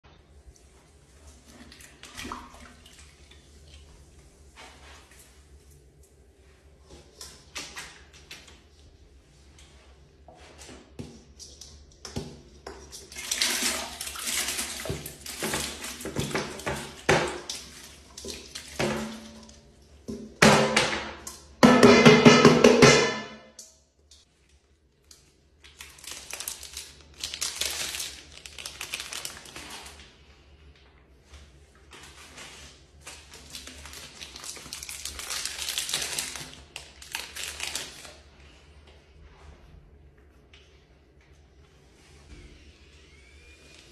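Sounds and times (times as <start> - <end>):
pasta splashing into water: 13.1 - 19.4
plastic wrapper crinkling: 25.6 - 30.1, 33.0 - 38.2.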